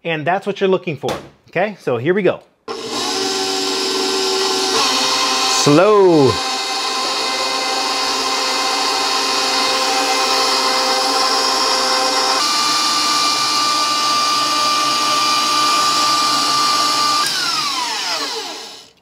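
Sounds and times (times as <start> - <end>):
stand mixer motor whining: 2.7 - 19.0.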